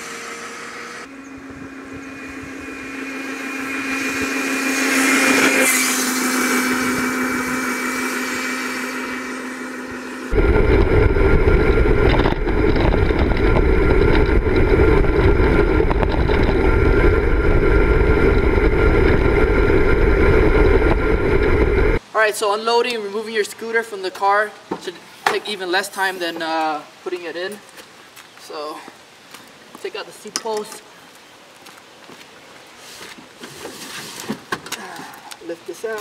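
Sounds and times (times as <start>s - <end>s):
electric motor whine: 0.0s - 22.0s
wind rumble on microphone: 1.2s - 7.7s, 9.8s - 22.0s
tyre noise: 10.3s - 22.0s.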